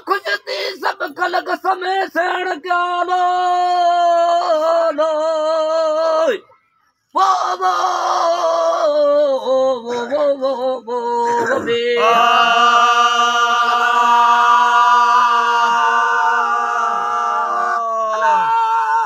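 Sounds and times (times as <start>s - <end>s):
men singing: 8.8s - 16.8s.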